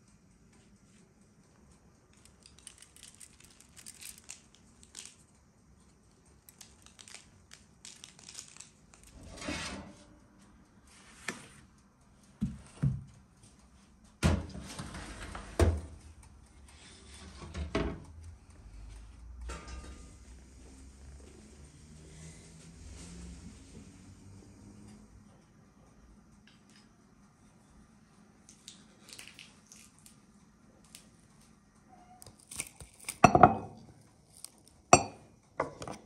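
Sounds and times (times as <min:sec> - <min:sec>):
brushing and rustling: 0:10.9 - 0:11.7, 0:22.1 - 0:24.2
baking tray knocks and clatters: 0:12.4 - 0:13.1, 0:14.2 - 0:16.0, 0:17.2 - 0:18.1.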